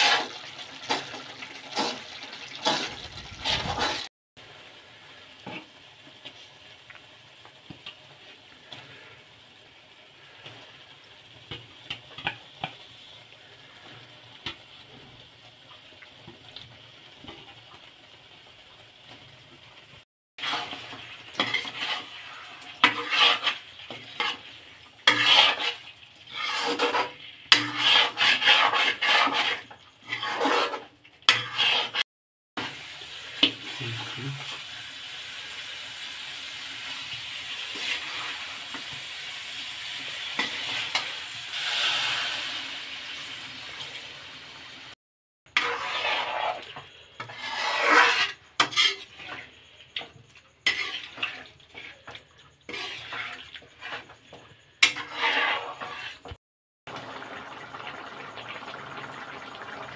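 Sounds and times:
metal ladle scraping pot: 0:00.0 - 0:04.1, 0:20.4 - 0:32.0, 0:45.5 - 0:49.7, 0:50.6 - 0:56.4
steady sizzling hiss: 0:32.6 - 0:45.0.

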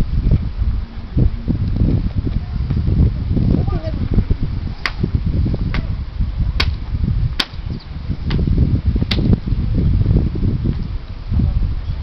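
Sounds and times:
wind buffeting microphone: 0:00.0 - 0:12.0
wooden paddles striking ball: 0:07.4 - 0:07.6.

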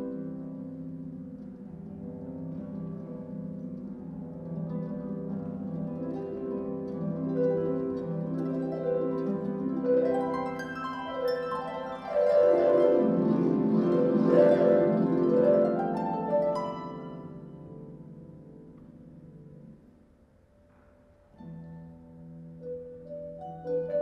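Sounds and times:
harp plucked notes and glissandi: 0:04.5 - 0:18.6.

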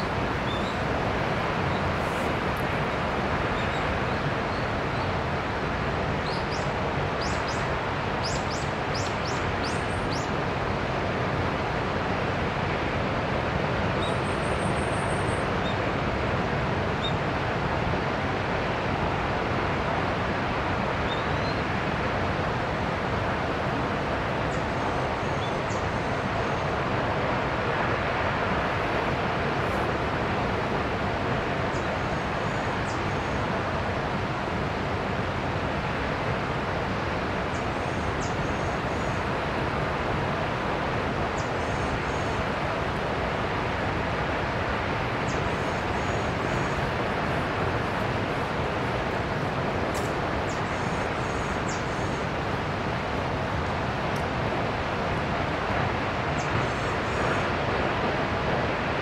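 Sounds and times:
distant waterfall rushing: 0:00.0 - 0:59.0.

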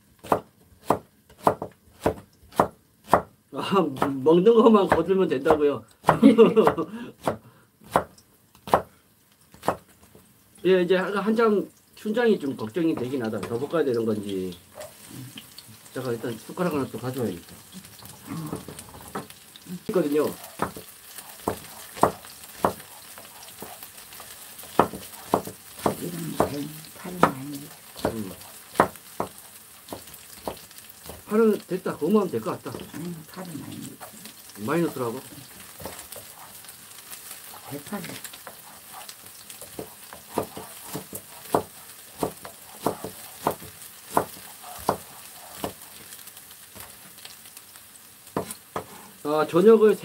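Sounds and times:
vegetables sizzling in a pan: 0:00.0 - 0:50.0
knife chopping on wooden board: 0:00.2 - 0:03.3, 0:04.9 - 0:08.9, 0:09.5 - 0:09.9, 0:18.4 - 0:19.4, 0:20.3 - 0:31.3, 0:35.6 - 0:36.6, 0:37.6 - 0:46.2, 0:48.3 - 0:49.0
wooden spatula stirring: 0:17.4 - 0:47.2.

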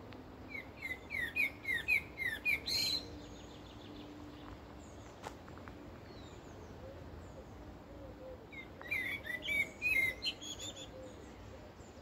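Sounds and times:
bird chirps and trills: 0:00.5 - 0:05.1, 0:08.5 - 0:12.0.

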